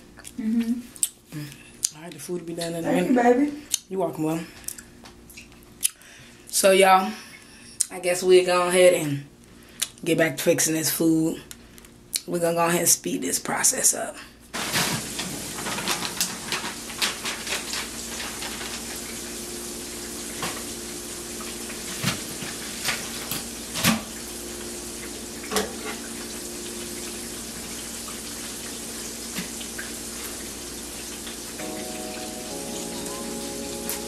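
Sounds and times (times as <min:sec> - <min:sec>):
oil popping and crackling: 0:14.6 - 0:31.6
food sizzling in a pan: 0:14.6 - 0:34.0.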